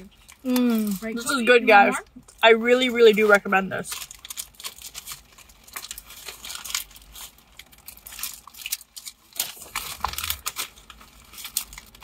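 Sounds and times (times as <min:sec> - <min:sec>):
paper wrapper crinkling: 0:02.8 - 0:12.0
packaging rustling: 0:03.2 - 0:12.0.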